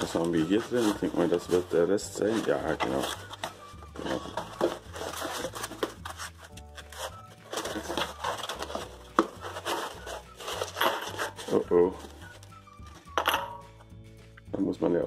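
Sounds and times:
foam rustling against cardboard: 0.0 - 12.4.

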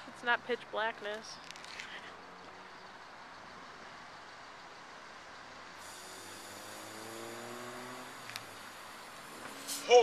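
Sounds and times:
gas hissing from bottle: 5.8 - 9.8.

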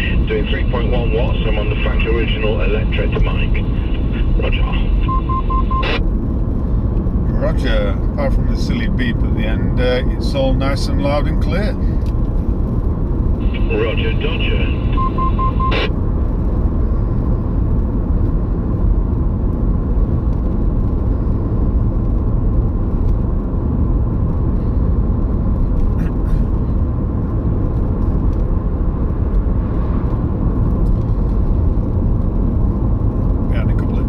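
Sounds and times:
radio roger beep: 0.0 - 6.0, 13.4 - 15.9
car cabin road noise: 0.0 - 34.0.

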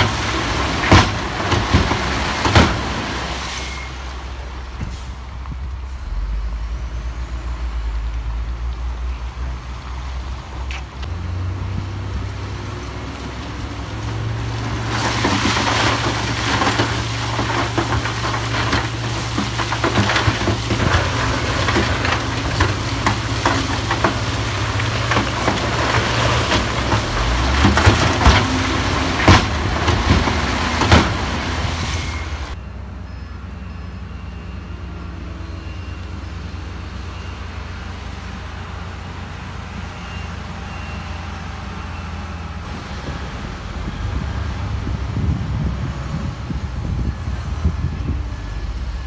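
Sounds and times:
diesel engine drone: 0.0 - 49.0
heavy machinery grinding: 12.8 - 32.6.

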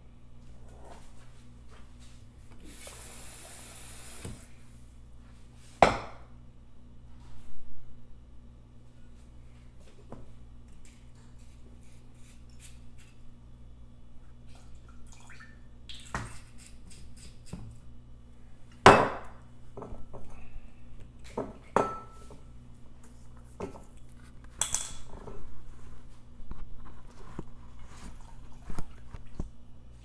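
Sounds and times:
kitchenware clatter: 21.3 - 22.4, 24.6 - 25.5
glassy clink: 21.8 - 22.2.

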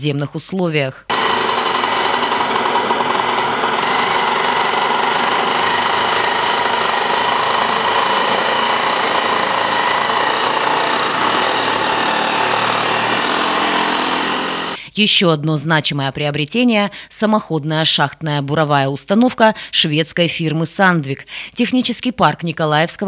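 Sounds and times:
rock drill drilling into rock: 1.1 - 14.8.

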